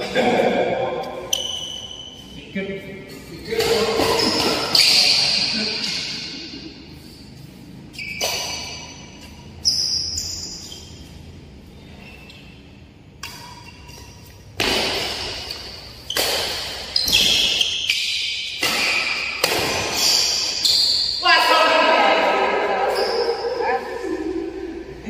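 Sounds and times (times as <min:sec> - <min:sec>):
shoe squeaks: 0:01.2 - 0:06.3, 0:07.2 - 0:14.6, 0:15.4 - 0:21.2, 0:22.8 - 0:24.0
racket hitting shuttlecock: 0:03.5 - 0:06.3, 0:08.1 - 0:09.4, 0:13.1 - 0:21.2.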